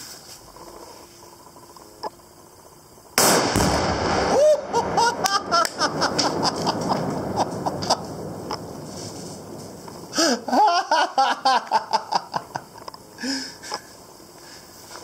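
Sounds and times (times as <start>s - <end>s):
rifle shot and explosion: 3.2s - 9.8s
people laughing: 4.4s - 8.1s, 10.2s - 12.8s.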